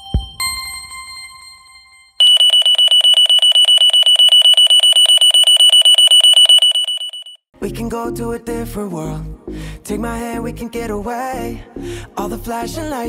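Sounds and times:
alarm clock ringing: 2.2s - 7.4s.

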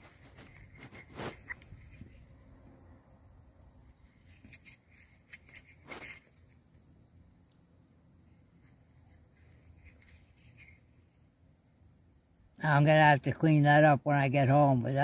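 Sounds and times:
thumb rubbing metal plate: 0.0s - 2.6s, 4.0s - 6.6s.

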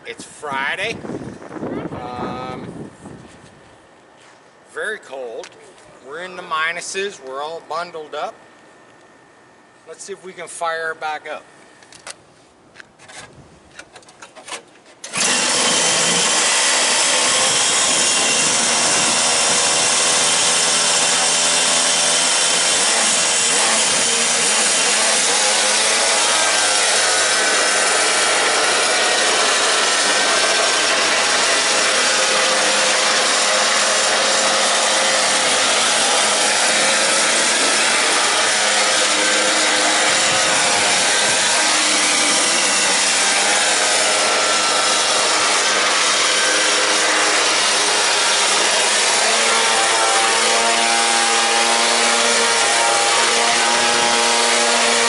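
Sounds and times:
small gas engine buzzing: 15.0s - 55.0s.

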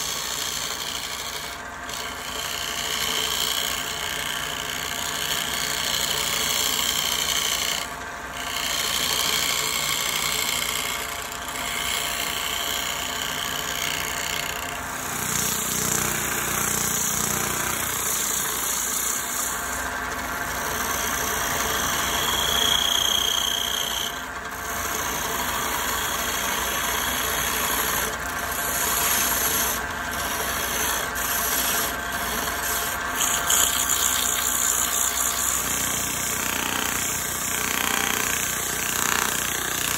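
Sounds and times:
turning tool scraping wood: 0.0s - 39.9s
sandpaper rubbing wood: 28.6s - 35.6s.

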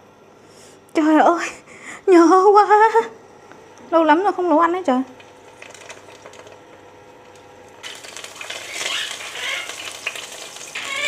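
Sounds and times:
meat rolls sizzling in hot oil: 7.8s - 11.0s.

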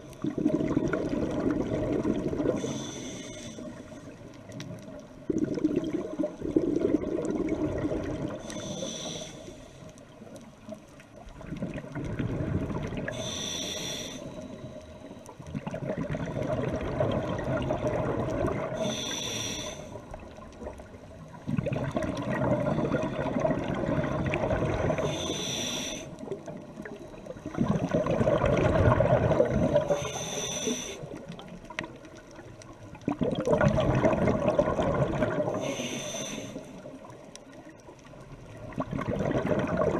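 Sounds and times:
exhaled bubbles: 0.0s - 2.9s, 4.4s - 8.8s, 11.2s - 13.5s, 15.4s - 19.2s, 19.9s - 36.0s, 36.8s - 39.9s
hissing regulator inhale: 2.5s - 4.2s, 8.3s - 10.1s, 13.1s - 15.3s, 18.7s - 20.2s, 24.9s - 26.4s, 29.4s - 31.3s, 35.5s - 37.0s.

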